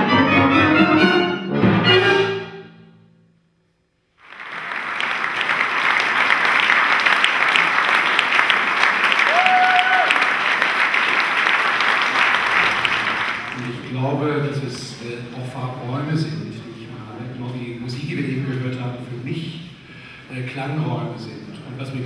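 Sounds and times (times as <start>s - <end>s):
audience applause: 4.2s - 14.0s.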